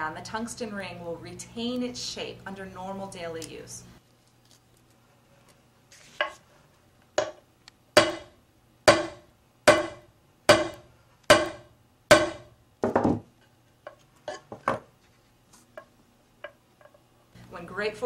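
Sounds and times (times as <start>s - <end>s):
hammer striking metal ring: 8.9s - 12.5s.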